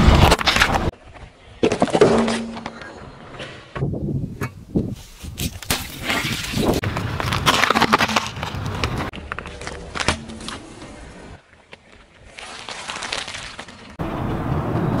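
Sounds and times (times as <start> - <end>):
tyre crushing small objects: 5.4 - 10.8, 11.8 - 14.0.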